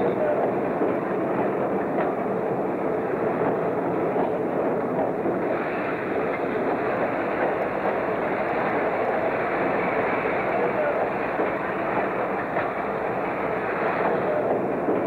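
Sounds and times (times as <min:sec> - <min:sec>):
freight cars rolling rumble: 0:00.0 - 0:15.0.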